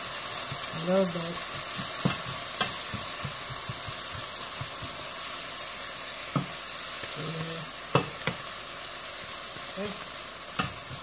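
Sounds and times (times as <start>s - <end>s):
onion and pepper sizzling in pan: 0.0s - 11.0s
sharp tap on pan: 1.5s - 5.0s, 6.3s - 6.6s, 7.9s - 8.5s, 10.6s - 11.0s.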